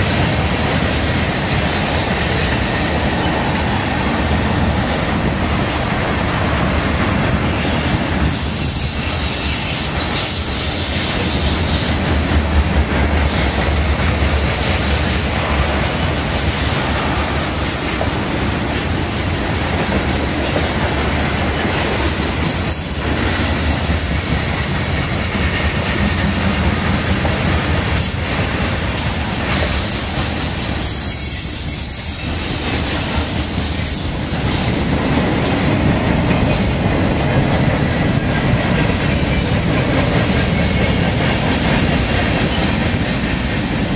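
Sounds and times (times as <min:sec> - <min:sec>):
train wheels clattering on rails: 0:00.0 - 0:43.9
wheel squeal: 0:07.4 - 0:11.9, 0:29.0 - 0:35.0, 0:43.5 - 0:43.9.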